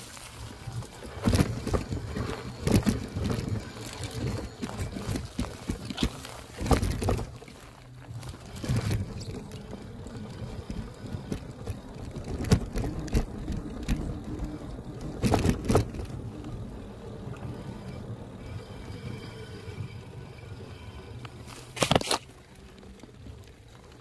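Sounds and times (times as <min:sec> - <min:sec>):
knocks and rattles over bumps: 0:00.0 - 0:19.2
electric bike motor humming: 0:00.0 - 0:24.0.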